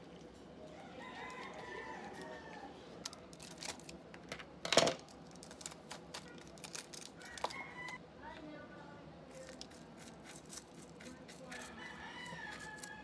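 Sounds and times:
rooster crowing: 0.7s - 2.8s, 7.2s - 8.0s, 11.5s - 13.0s.

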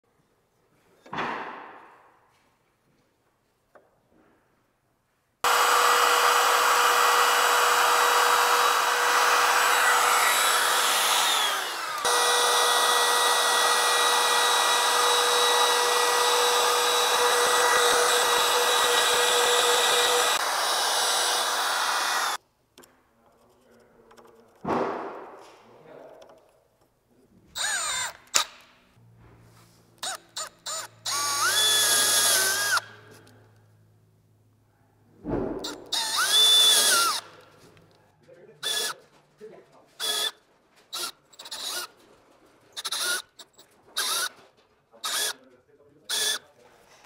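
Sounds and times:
router cutting wood: 5.4s - 22.4s, 27.6s - 28.5s, 30.0s - 33.1s, 35.6s - 37.4s, 38.6s - 39.0s, 40.0s - 40.3s, 40.9s - 41.9s, 42.8s - 43.3s, 44.0s - 44.3s, 45.0s - 45.4s, 46.1s - 46.4s.

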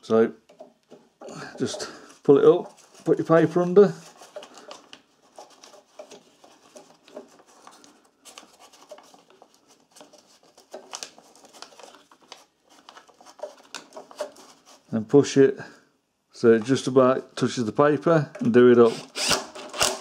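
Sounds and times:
paper rustles and scrapes: 1.6s - 15.0s.

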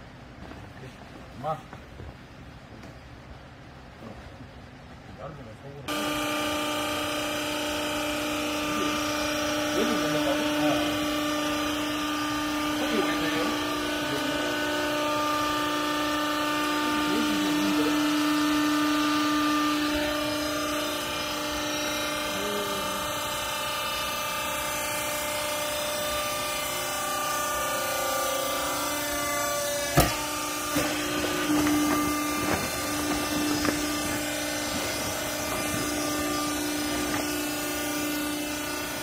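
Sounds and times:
hydraulic unit whine: 0.0s - 39.0s
sharp knocks: 29.8s - 37.4s.

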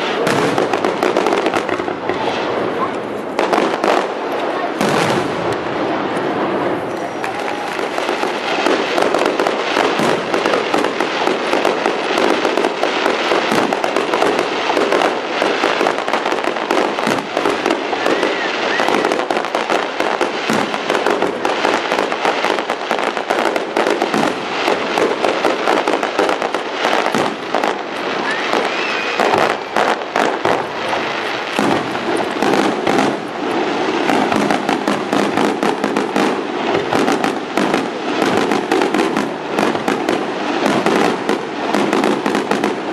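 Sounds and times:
fireworks bangs and crackles: 0.0s - 42.9s.

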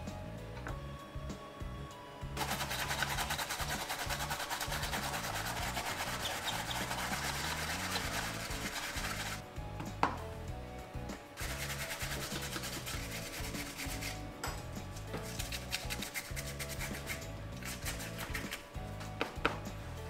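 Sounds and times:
quiet background music: 0.0s - 20.0s
food grated on hand grater: 2.4s - 9.4s, 11.4s - 14.2s, 15.2s - 18.6s.

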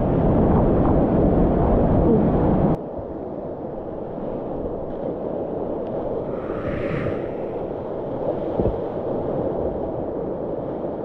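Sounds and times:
moving water rushing: 6.0s - 9.3s.

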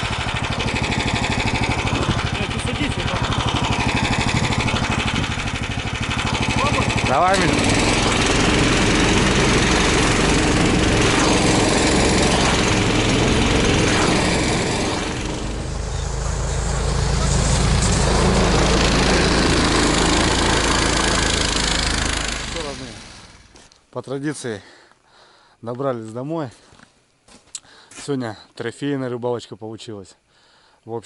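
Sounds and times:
snowmobile engine running: 0.0s - 23.6s.

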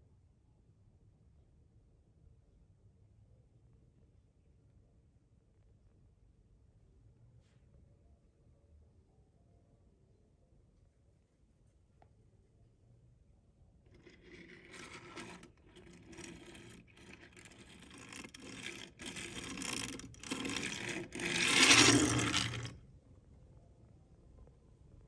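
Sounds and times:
toy truck scraping on wood: 13.9s - 22.8s.

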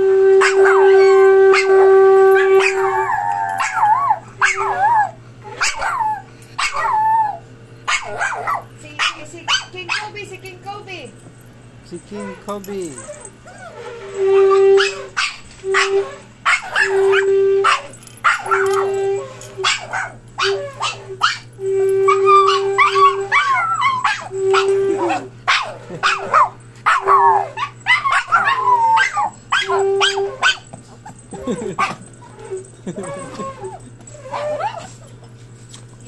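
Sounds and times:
shofar blasts: 0.0s - 3.7s, 13.6s - 19.8s, 20.4s - 25.4s, 28.4s - 30.6s
small dogs barking and howling: 0.3s - 10.3s, 12.1s - 35.4s.

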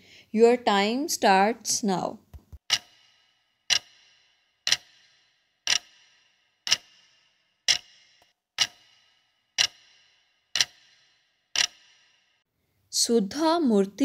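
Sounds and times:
countdown timer ticking: 2.7s - 12.4s.

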